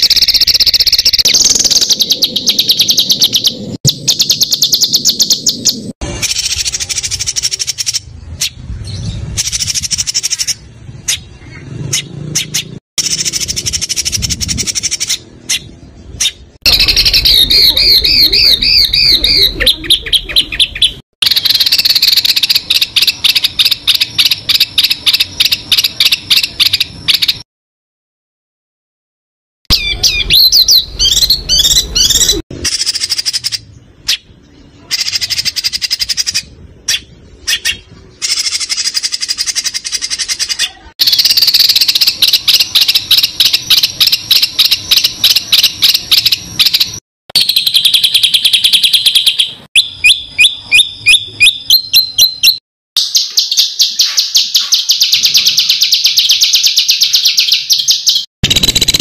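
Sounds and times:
songbird singing: 0.0s - 27.4s, 29.7s - 59.0s.

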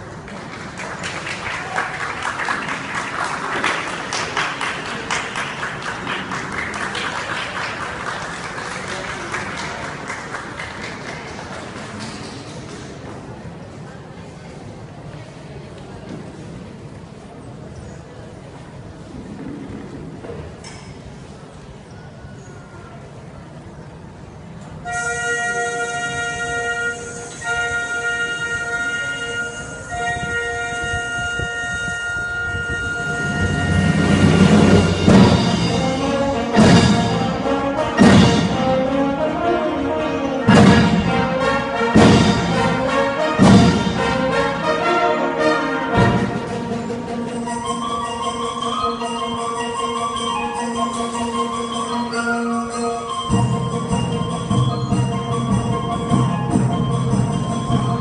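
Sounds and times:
audience applauding: 0.0s - 13.0s
wind band brass and woodwind chords: 24.8s - 58.0s.

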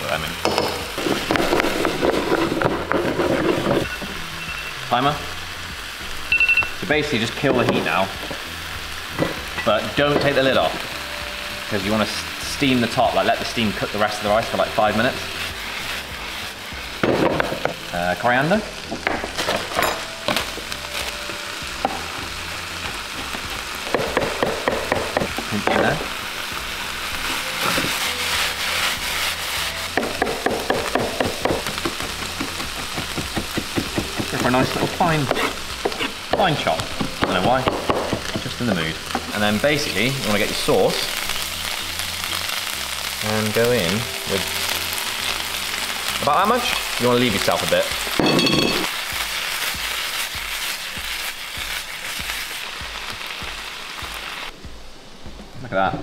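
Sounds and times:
meat sizzling in frying pan: 0.0s - 54.6s
knife chopping on wooden board: 23.9s - 25.8s, 30.0s - 34.6s.

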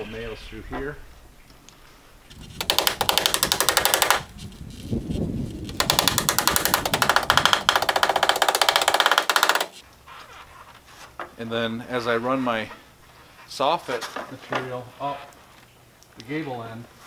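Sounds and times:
nailing tool hammering rapidly: 2.6s - 4.3s, 5.8s - 9.8s.

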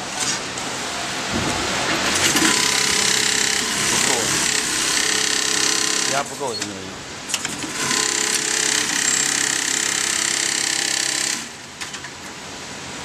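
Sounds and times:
sewing machine whirring: 2.1s - 6.4s, 7.3s - 11.7s.

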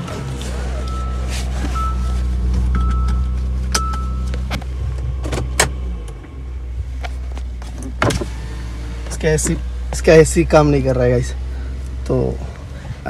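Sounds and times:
car engine idling: 0.0s - 13.0s
warning chime beeps: 0.1s - 4.4s.

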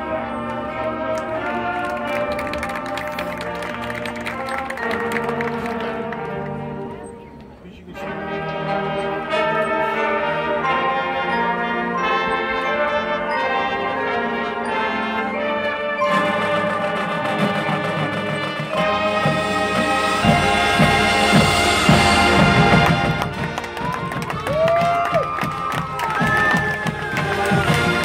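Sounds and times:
brass chords: 0.0s - 28.0s
mallet percussion: 10.7s - 28.0s.

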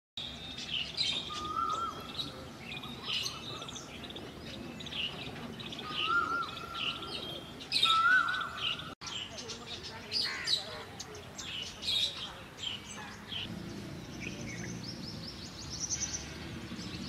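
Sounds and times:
birds chirping and twittering: 0.2s - 17.0s
whistled bird call: 5.8s - 8.9s.

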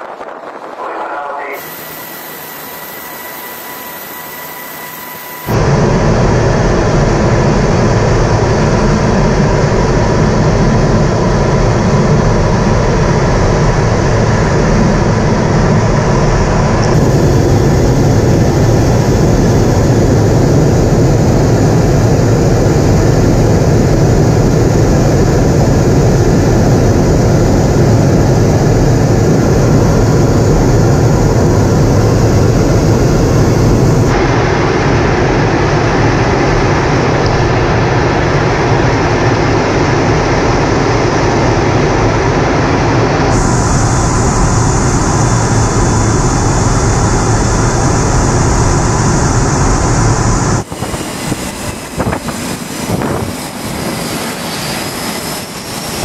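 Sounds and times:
jet engine and airflow: 0.0s - 56.0s
faint steady tone: 1.5s - 5.6s.

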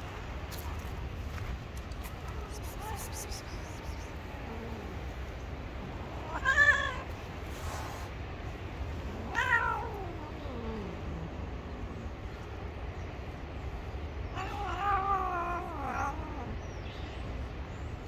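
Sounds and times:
cat yowling angrily: 6.2s - 7.1s, 9.2s - 11.0s, 14.3s - 16.6s.

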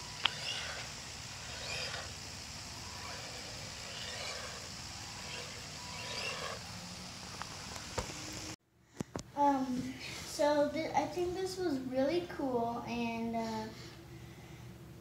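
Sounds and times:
small electric motor whining: 0.0s - 8.6s
steady hiss: 0.0s - 8.6s.

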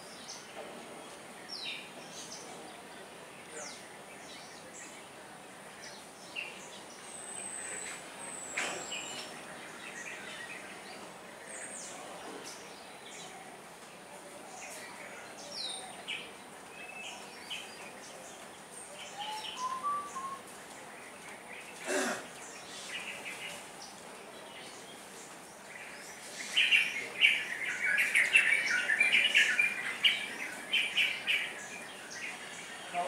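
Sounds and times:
starlings chirping: 14.6s - 33.0s
short rising bird whistle: 19.2s - 20.4s.

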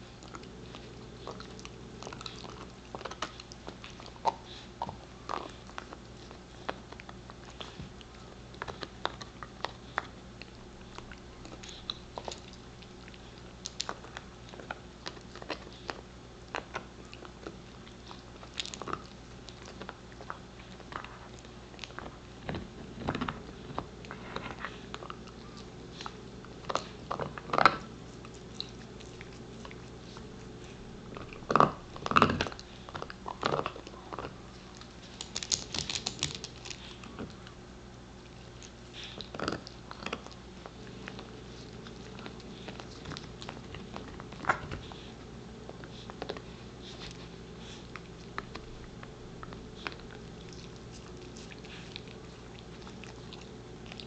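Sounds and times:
dog gnawing antler: 0.0s - 54.0s.

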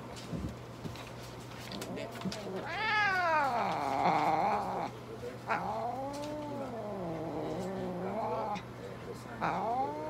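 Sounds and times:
cat yowling: 2.6s - 4.9s, 9.4s - 10.0s.

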